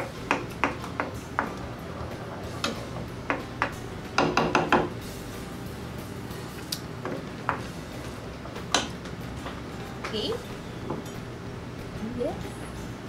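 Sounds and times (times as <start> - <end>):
wooden spoon knocking on skillet: 0.0 - 1.6, 2.6 - 5.0, 7.0 - 7.8
low steady hum: 4.9 - 13.0.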